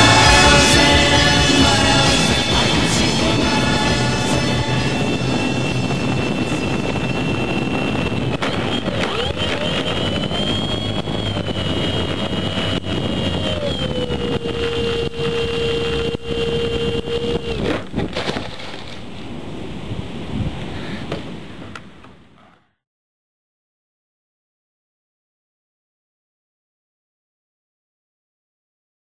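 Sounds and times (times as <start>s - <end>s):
small motor whining: 0.0s - 17.9s
wind noise: 0.0s - 22.6s.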